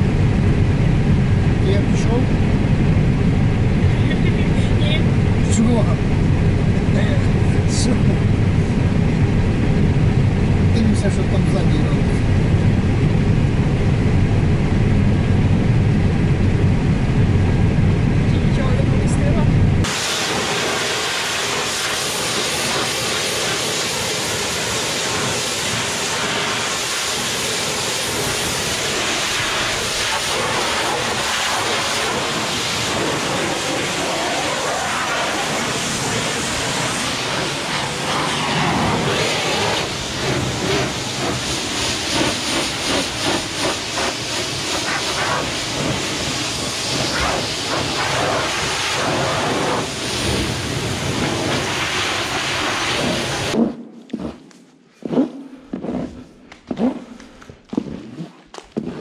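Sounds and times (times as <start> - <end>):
pressure washer jet hissing: 19.8 - 53.6.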